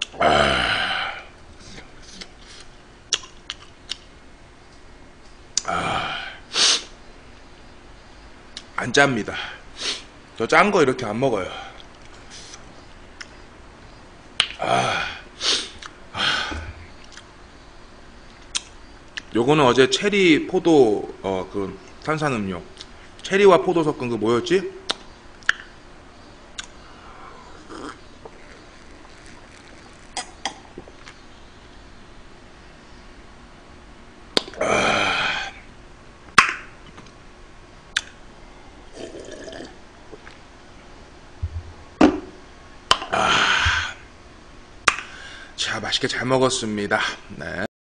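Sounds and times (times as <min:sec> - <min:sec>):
mouth clicks and lip smacks: 0:02.0 - 0:04.1, 0:11.8 - 0:13.4, 0:14.4 - 0:14.6, 0:15.8 - 0:16.0, 0:17.0 - 0:17.3, 0:18.3 - 0:19.3, 0:24.9 - 0:25.7, 0:26.5 - 0:26.8, 0:27.7 - 0:31.2, 0:34.4 - 0:34.6, 0:37.9 - 0:38.2, 0:44.8 - 0:45.1
person gulping: 0:27.5 - 0:31.1, 0:38.9 - 0:40.4
breathy throat sound: 0:43.0 - 0:44.1.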